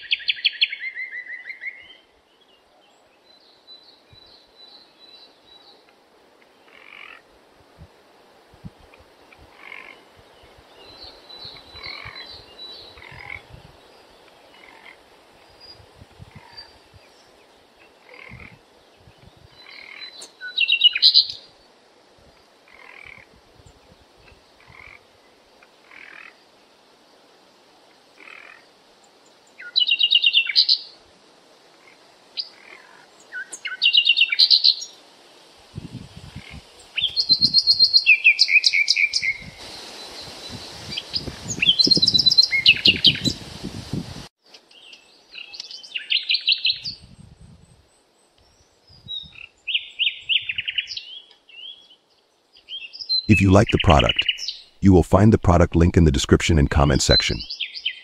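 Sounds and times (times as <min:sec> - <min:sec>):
frog and bird calls: 0:06.6 - 0:07.3, 0:09.5 - 0:10.1, 0:10.9 - 0:13.5, 0:14.4 - 0:15.0, 0:18.0 - 0:18.6, 0:22.7 - 0:23.3, 0:24.6 - 0:25.1, 0:25.8 - 0:26.5, 0:28.1 - 0:28.7.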